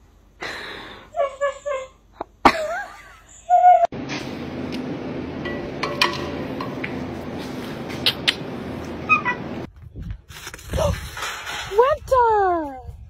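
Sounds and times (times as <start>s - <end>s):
steady hum: 4.0s - 9.7s.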